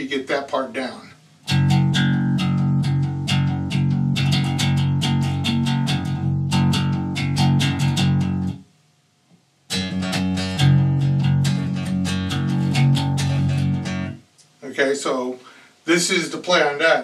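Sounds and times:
electric bass riff: 0:01.4 - 0:08.6, 0:09.7 - 0:14.4.

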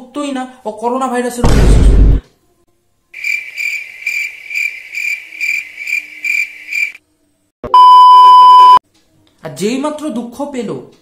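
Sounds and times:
crickets chirping: 0:03.2 - 0:07.0.

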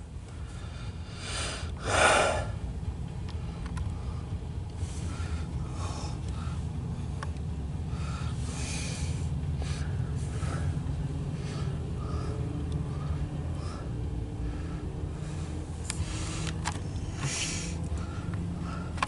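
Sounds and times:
diesel locomotive rumbling: 0:00.0 - 0:19.0.

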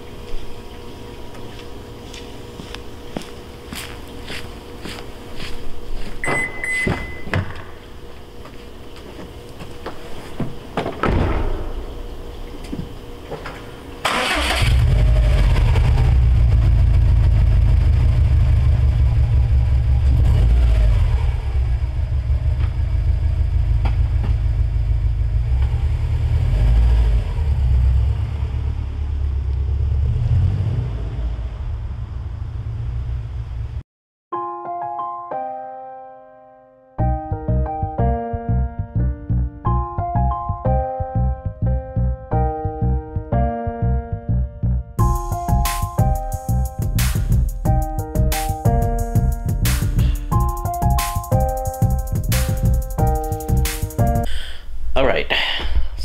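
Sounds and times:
car engine starting and idling: 0:11.5 - 0:33.8.

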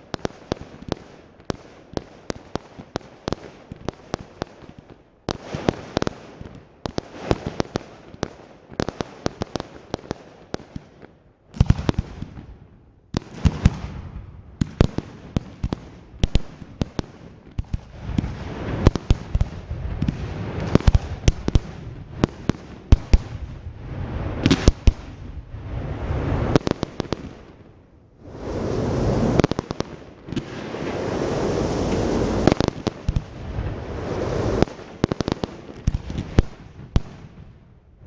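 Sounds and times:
steady hiss: 0:28.2 - 0:36.1.

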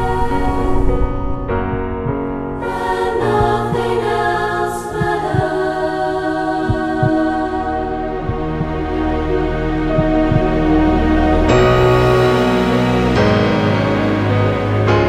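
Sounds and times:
choir singing held chords: 0:00.0 - 0:15.0
short low thuds: 0:06.7 - 0:07.2.

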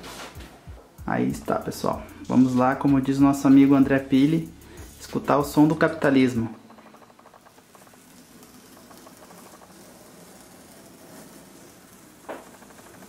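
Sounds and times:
tape peeling off cardboard: 0:06.9 - 0:13.0.

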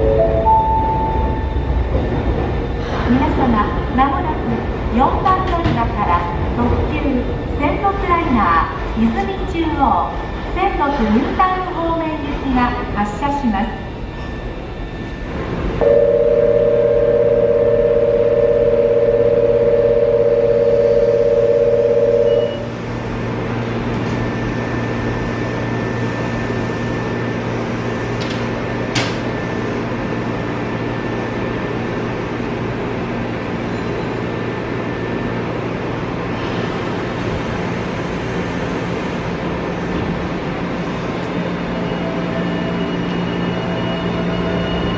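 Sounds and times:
low station and train hum: 0:00.0 - 0:44.9
electronic two-tone buzzer: 0:15.8 - 0:22.7.

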